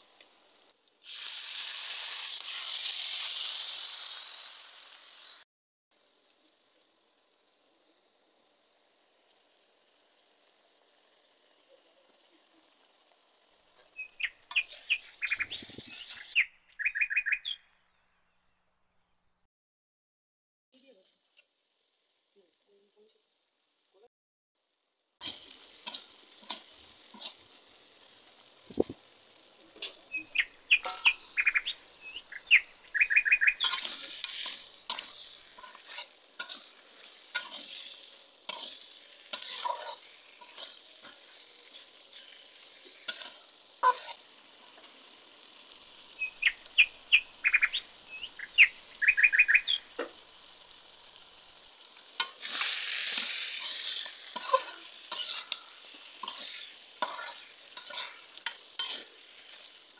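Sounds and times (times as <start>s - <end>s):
food sizzling in hot oil: 0.0s - 17.6s, 20.8s - 59.9s
rapid high chirps: 30.1s - 33.8s, 46.2s - 49.9s
metal spatula scraping pan: 33.6s - 44.2s, 52.2s - 59.8s.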